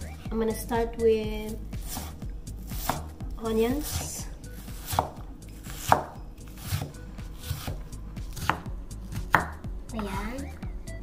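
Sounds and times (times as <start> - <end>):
knife chopping on wooden board: 1.8 - 3.1, 3.7 - 9.6.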